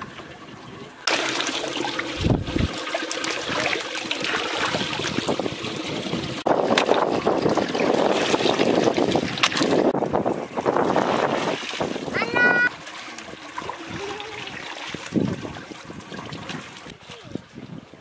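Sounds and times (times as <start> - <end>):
water splashing and trickling: 0.0 - 18.0
water pouring from colander: 1.1 - 9.9, 10.9 - 16.9
wind bump on microphone: 2.1 - 2.8, 4.8 - 12.7, 13.9 - 18.0.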